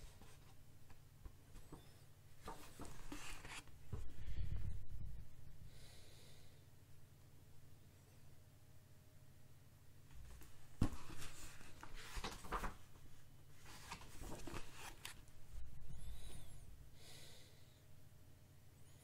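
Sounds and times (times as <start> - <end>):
book handling sound: 0.0 - 4.1, 10.1 - 16.4
book pages rustling: 0.0 - 4.1, 10.1 - 16.4.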